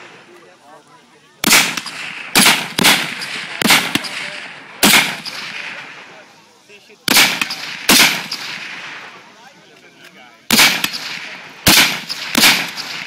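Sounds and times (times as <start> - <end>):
rifle shots echoing: 1.4 - 6.1, 7.1 - 9.3, 10.5 - 13.0.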